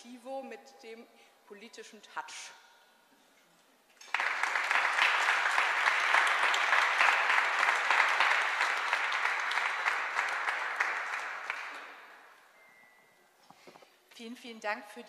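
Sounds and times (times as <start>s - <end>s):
audience applauding: 4.0s - 12.3s.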